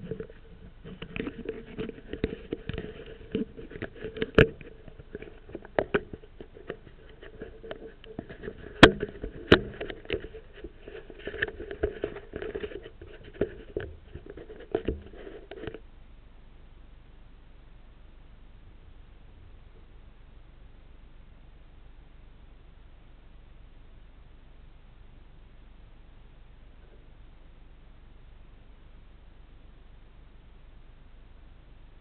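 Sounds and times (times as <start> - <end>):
fingers tapping and scraping camera: 0.0 - 15.8.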